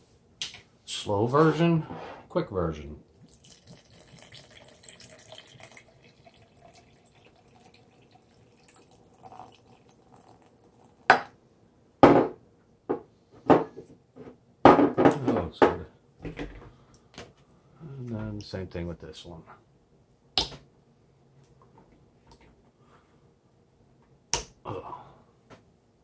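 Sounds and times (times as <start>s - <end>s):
liquid trickling into a jar: 3.1s - 11.1s.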